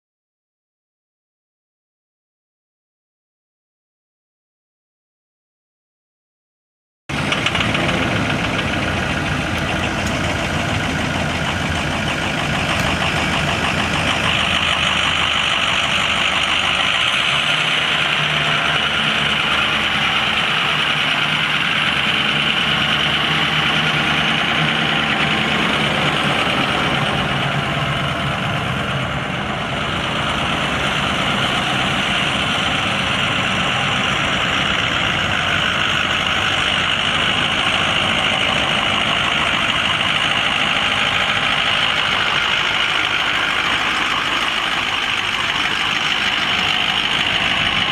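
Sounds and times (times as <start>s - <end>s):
diesel engine idling: 7.1s - 47.9s.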